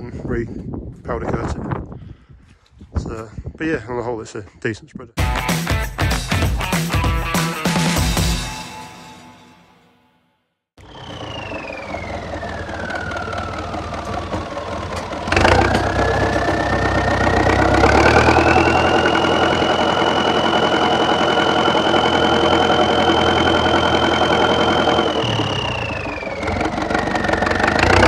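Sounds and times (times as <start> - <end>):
drivetrain whine: 10.8 - 28.0
tractor engine running: 10.8 - 28.0.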